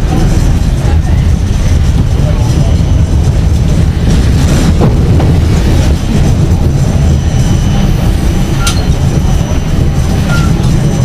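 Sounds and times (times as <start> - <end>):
tram rumbling on track: 0.0 - 11.0
faint high wheel squeal: 7.0 - 10.8.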